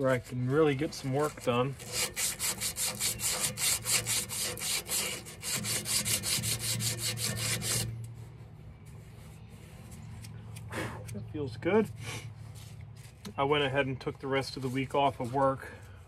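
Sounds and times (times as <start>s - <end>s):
abrasive strip rasping on steel shaft: 0.0s - 11.2s.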